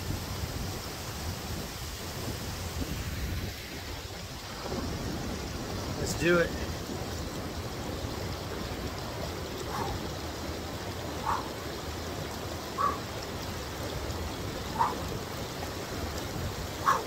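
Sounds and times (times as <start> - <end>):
stream rushing: 0.0 - 17.0.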